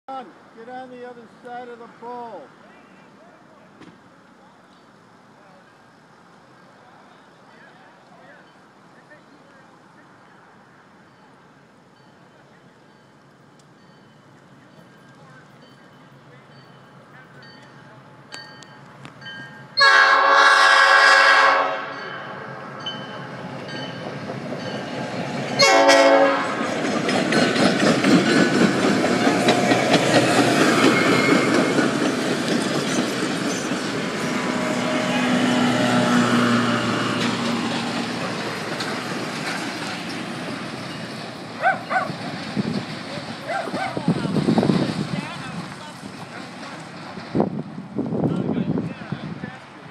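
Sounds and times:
locomotive air horn: 19.8 - 22.0, 25.6 - 26.6
train wheels clattering on rails: 22.8 - 34.6, 36.7 - 47.7.

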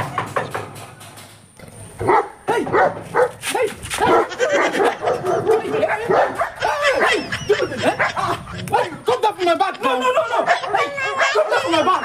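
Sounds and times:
dog barking: 2.0 - 7.2, 10.1 - 11.9.

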